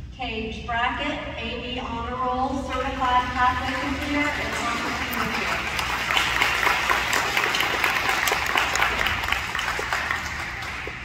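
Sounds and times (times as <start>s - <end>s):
audience applauding: 3.7s - 11.0s.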